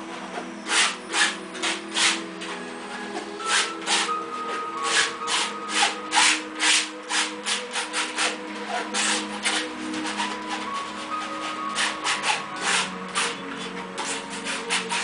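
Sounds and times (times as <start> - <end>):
soft background music: 0.0 - 15.0
paint scrubbing on canvas: 4.8 - 15.0.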